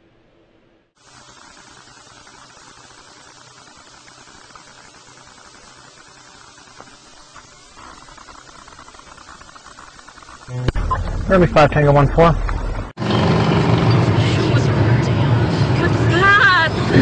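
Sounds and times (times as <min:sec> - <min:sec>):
hiss and crackle: 0:01.0 - 0:10.7.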